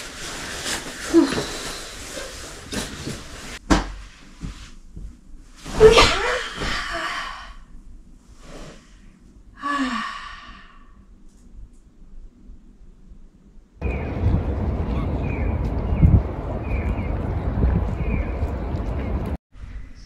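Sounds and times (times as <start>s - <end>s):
woman sighing: 9.6s - 10.8s.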